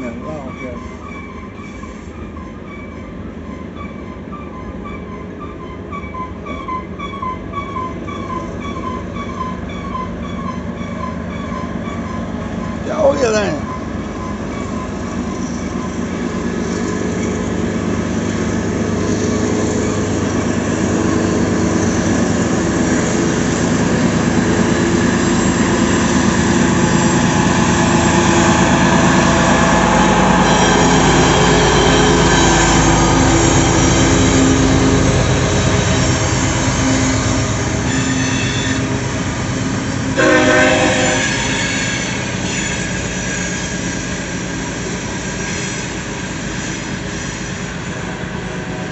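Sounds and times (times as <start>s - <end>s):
freight train wheels on rail: 0.0s - 48.9s
locomotive horn blast: 40.2s - 41.8s.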